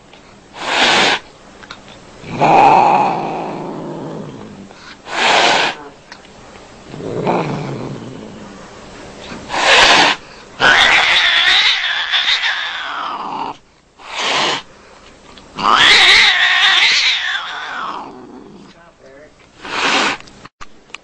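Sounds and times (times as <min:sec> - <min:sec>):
cat harsh burst: 0:00.6 - 0:01.3, 0:05.0 - 0:05.8, 0:09.5 - 0:13.2, 0:14.0 - 0:14.7, 0:15.6 - 0:18.1, 0:19.6 - 0:20.2
cat yowling: 0:09.7 - 0:13.6, 0:15.6 - 0:18.2.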